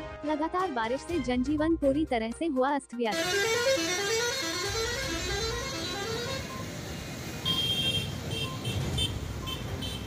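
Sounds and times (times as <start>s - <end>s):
traffic noise: 3.1s - 10.0s
vehicle horn playing a tune: 3.2s - 6.7s, 7.4s - 10.0s.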